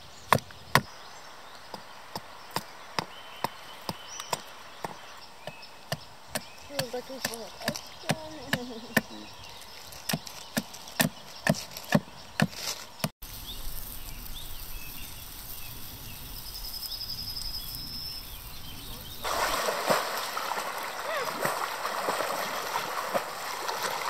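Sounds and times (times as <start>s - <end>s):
campfire crackling: 13.2s - 24.0s
river water rushing: 19.2s - 24.0s.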